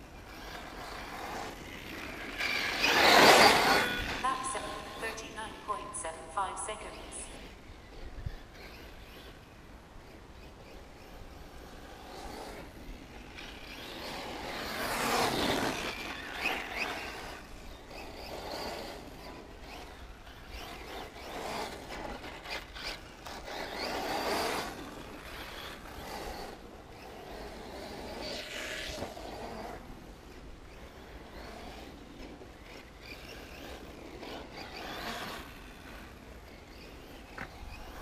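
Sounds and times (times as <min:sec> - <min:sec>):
rc car motor and tyres: 0:00.0 - 0:05.7, 0:06.9 - 0:38.0.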